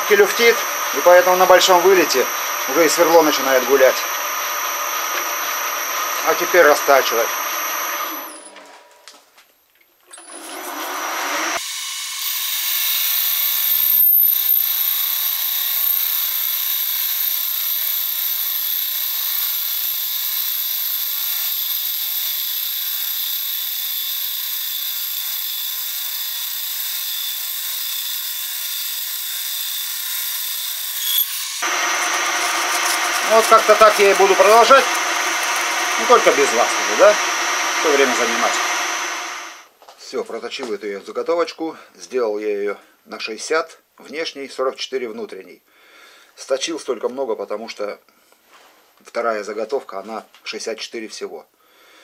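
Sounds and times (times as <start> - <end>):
metal lathe cutting with high whine: 0.0 - 8.5, 10.3 - 39.6.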